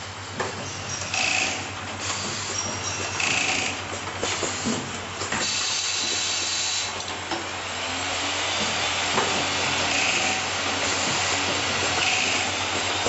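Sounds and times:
assembly machine running: 7.9s - 13.0s.

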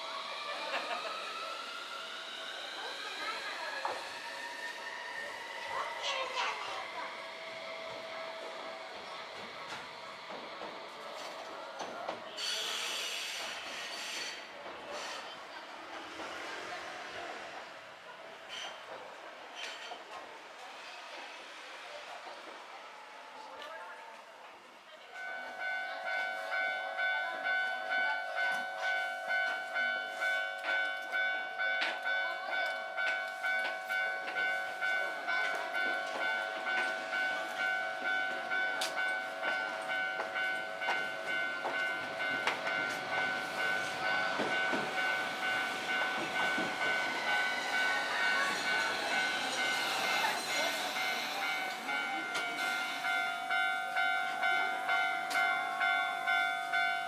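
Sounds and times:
level-crossing warning bell: 0.0s - 12.8s, 25.1s - 57.0s
tram running noise: 0.0s - 57.0s
tram whines: 0.0s - 57.0s.

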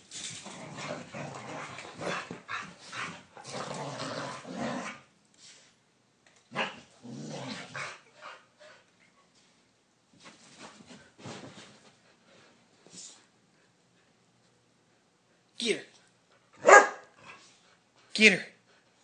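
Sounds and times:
dogs growling and barking: 0.3s - 5.1s, 6.5s - 8.4s.

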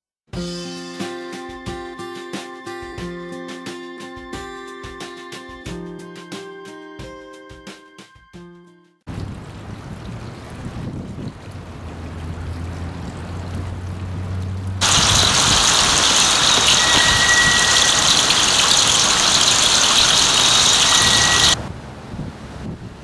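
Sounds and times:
fountain water splashing: 9.1s - 21.6s
hissy rush: 14.8s - 21.6s.

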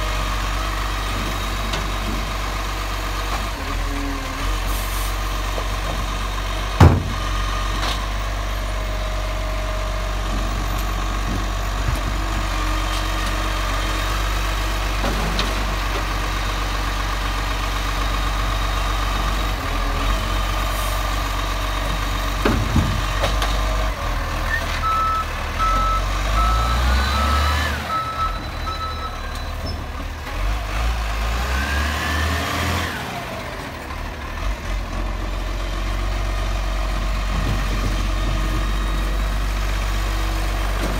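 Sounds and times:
garbage truck engine running: 0.0s - 40.9s
reversing alarm beeping: 24.8s - 29.7s.

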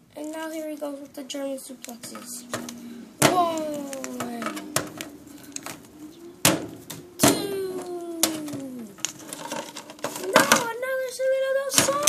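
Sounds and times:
long falling tone: 1.9s - 9.1s
plastic action figures knocking: 2.1s - 5.8s, 6.4s - 10.8s, 11.7s - 12.0s.

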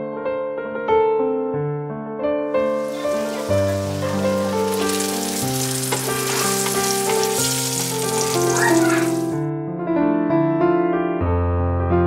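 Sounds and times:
soft piano music: 0.0s - 12.0s
flatbread sizzling in oil: 2.6s - 9.4s.

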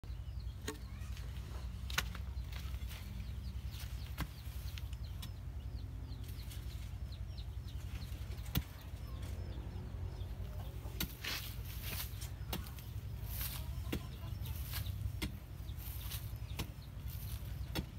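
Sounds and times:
chickens clucking: 0.1s - 17.9s
digging bar knocking dirt: 3.7s - 5.4s, 10.9s - 17.9s.

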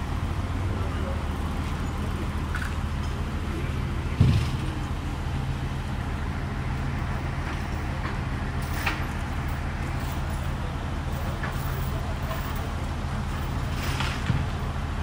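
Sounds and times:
large vehicle engine idling: 0.0s - 15.0s
loud thump: 4.2s - 4.7s.

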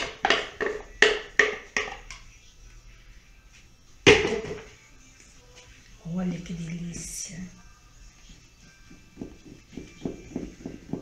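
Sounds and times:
percussive background music: 0.0s - 2.8s, 3.4s - 11.0s
blender jug set down: 4.1s - 4.7s.

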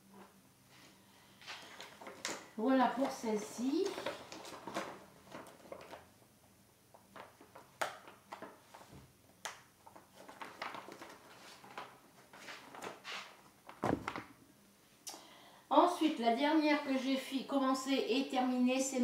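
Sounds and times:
dull thump: 13.8s - 14.2s.

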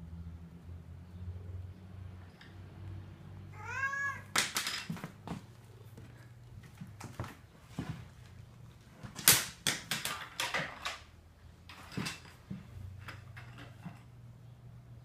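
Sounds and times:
pencil clattering on wooden floor: 4.3s - 5.4s, 9.1s - 11.1s, 11.7s - 14.1s.

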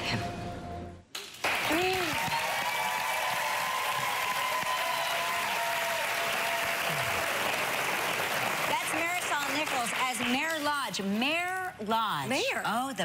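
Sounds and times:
audience applauding: 1.2s - 10.8s.

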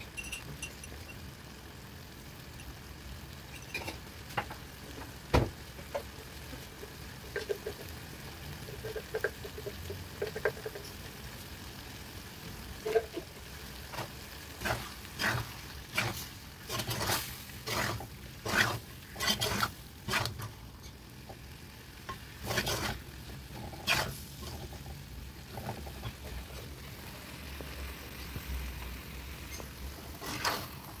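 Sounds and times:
meat sizzling: 0.0s - 31.0s
spoon scraping a clay pot: 14.6s - 21.0s, 22.4s - 23.0s, 23.8s - 24.8s.

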